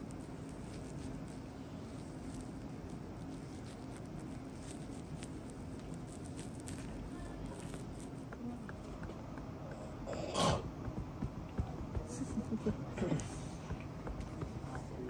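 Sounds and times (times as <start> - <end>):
hands rubbing a bare foot: 0.0 - 9.1
steady background hum: 0.0 - 15.0
massage hammer knock on foot: 10.7 - 13.0, 13.7 - 14.8.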